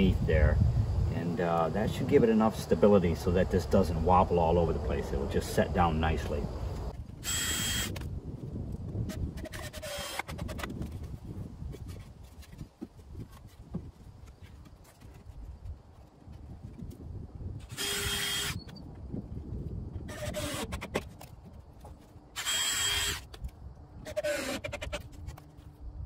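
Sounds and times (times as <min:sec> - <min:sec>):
cordless drill whining: 0:07.2 - 0:08.0, 0:09.5 - 0:10.4, 0:17.7 - 0:18.8, 0:20.1 - 0:20.8, 0:22.4 - 0:23.3.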